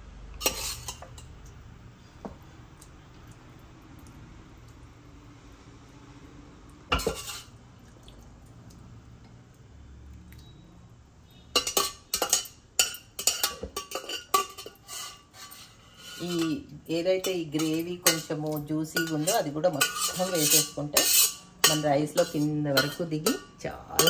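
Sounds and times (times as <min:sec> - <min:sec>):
metal utensil scraping metal pot: 0:00.4 - 0:01.3, 0:06.9 - 0:07.5, 0:11.3 - 0:24.0.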